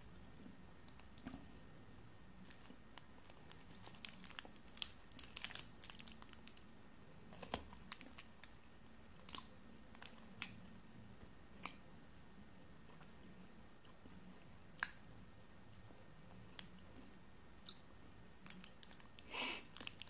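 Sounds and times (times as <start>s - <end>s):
plastic wrapper crinkling: 2.5s - 6.7s, 7.3s - 8.6s, 18.4s - 20.0s.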